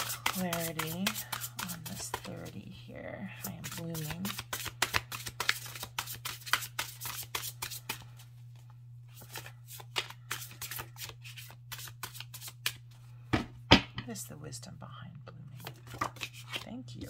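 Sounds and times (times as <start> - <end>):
cards being shuffled: 0.0 - 2.6, 3.4 - 12.9, 15.6 - 17.0
steady low hum: 0.0 - 17.0.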